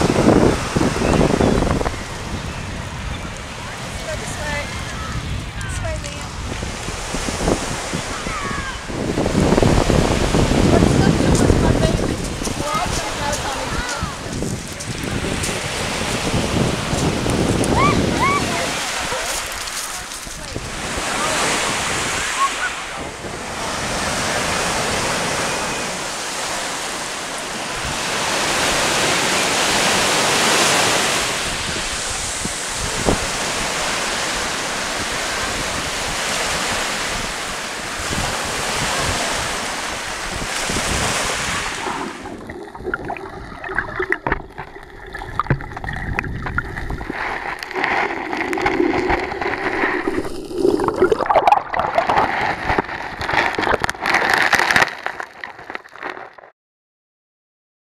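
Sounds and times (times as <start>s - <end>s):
waves breaking on beach: 0.0s - 56.4s
small underwater clicks and crackles: 11.3s - 15.6s, 19.2s - 20.7s, 41.8s - 56.5s
underwater sloshing: 40.8s - 56.4s.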